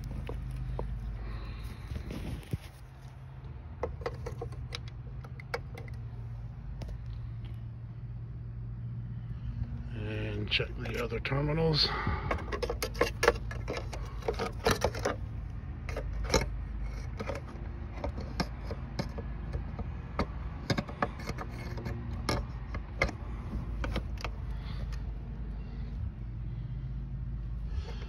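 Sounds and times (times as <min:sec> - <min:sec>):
clamp meter clicks and rattles: 0:03.8 - 0:06.0.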